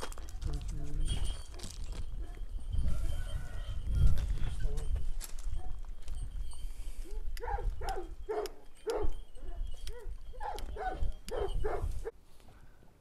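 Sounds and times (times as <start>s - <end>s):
dog barking: 7.0s - 11.9s.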